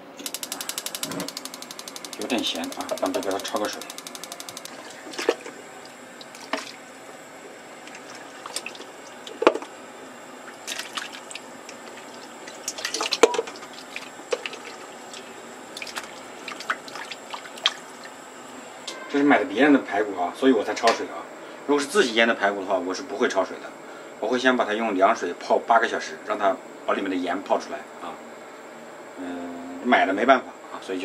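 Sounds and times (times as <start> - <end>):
water dripping and sloshing: 6.2 - 6.8, 7.8 - 9.4, 10.5 - 18.1.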